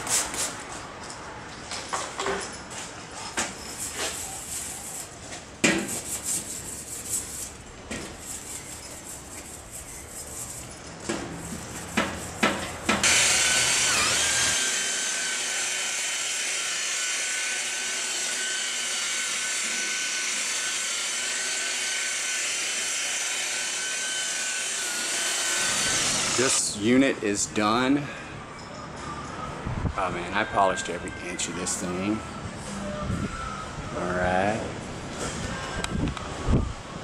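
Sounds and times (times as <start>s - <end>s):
hand rubbing on steel panel: 3.6s - 13.0s
electric polisher whining: 13.0s - 26.6s.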